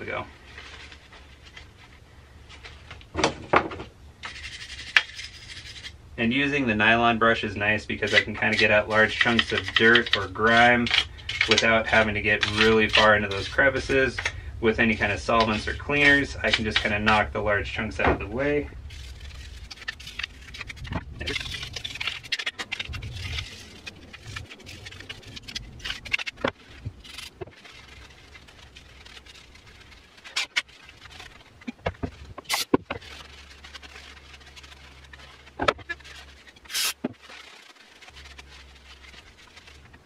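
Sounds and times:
brush scrubbing plastic: 4.2 - 6.0, 6.8 - 14.2, 18.4 - 40.0.

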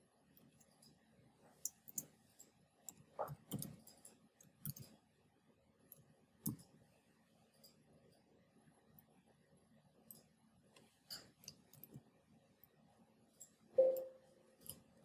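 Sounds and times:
keyboard typing clicks: 13.8 - 14.2.

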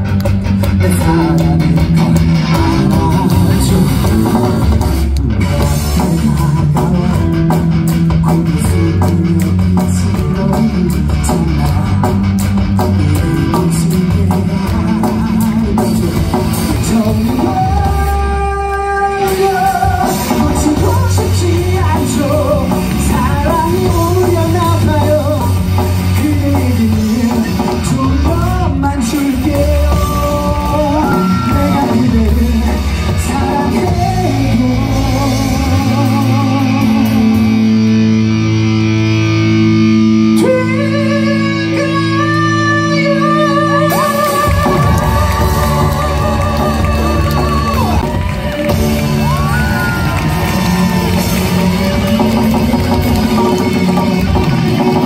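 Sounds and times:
live band with drums and guitars: 0.0 - 55.0
man singing into a microphone: 0.6 - 38.0, 40.2 - 48.2.

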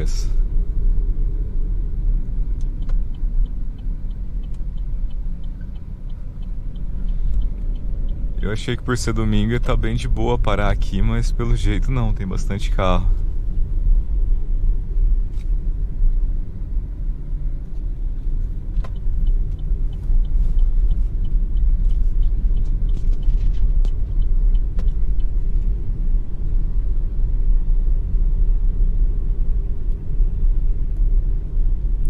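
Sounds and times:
car cabin road rumble: 0.0 - 32.0
faint light ticks: 2.6 - 10.0, 17.6 - 25.8.

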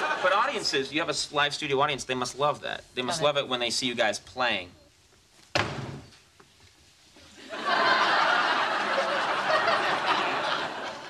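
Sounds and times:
studio audience laughing: 0.0 - 0.9, 7.4 - 11.0.

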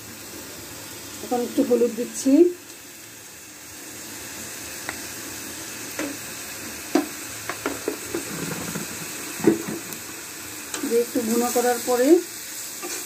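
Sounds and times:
food sizzling in oil: 0.0 - 13.0
metal spatula scraping a pan: 7.9 - 10.0, 12.8 - 13.0.

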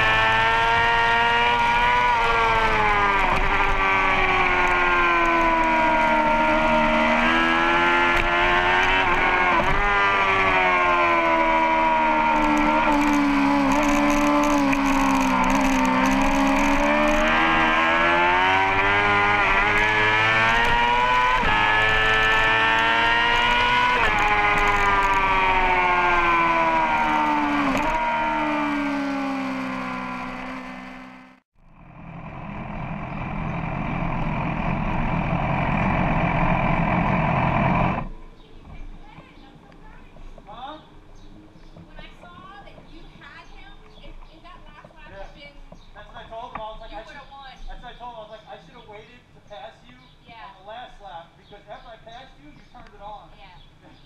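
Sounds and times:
race motorcycle engine revving: 0.0 - 38.2.

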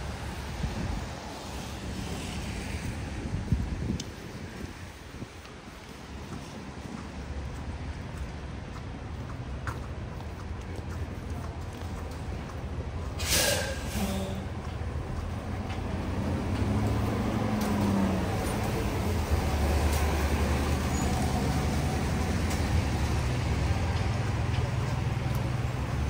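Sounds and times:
heavy vehicle engine: 0.0 - 26.0
air brakes hissing: 13.2 - 14.5.

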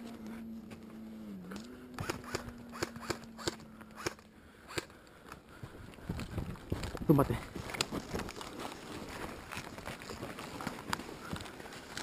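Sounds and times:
steady low hum: 0.0 - 6.8.

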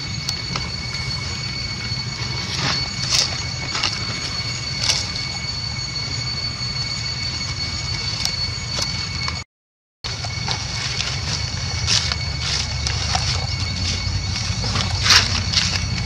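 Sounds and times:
high-pitched whining tones: 0.0 - 16.0
low rumble: 10.1 - 16.0.

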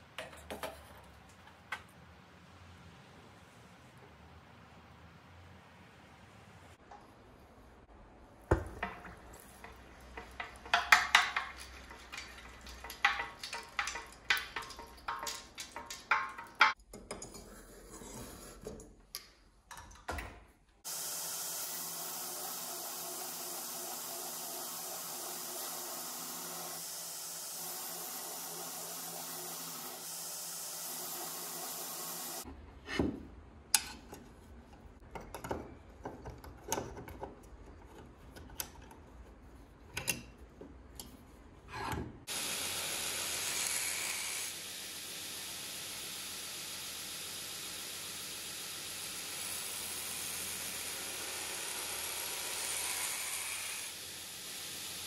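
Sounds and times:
metal clanks and knocks: 8.5 - 17.4
belt grinder grinding steel: 42.3 - 44.6, 45.9 - 55.0.

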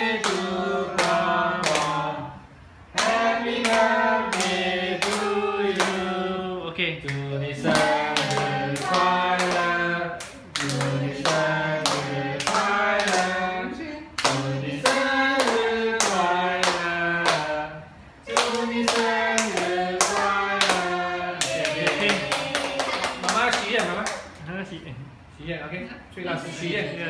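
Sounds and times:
group singing: 0.0 - 23.5
people clapping in time: 18.3 - 24.4.

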